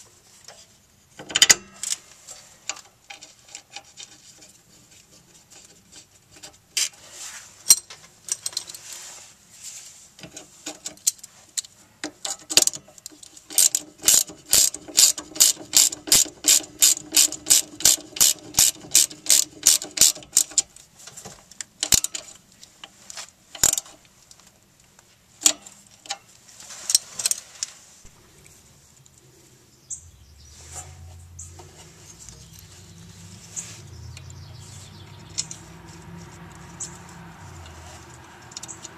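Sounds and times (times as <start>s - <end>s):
hand ratchet clicking: 13.5s - 20.6s.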